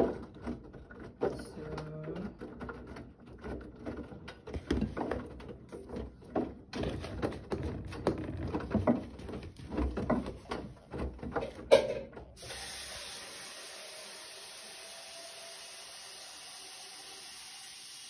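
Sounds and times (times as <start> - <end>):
water running into washing machine: 11.4 - 18.0.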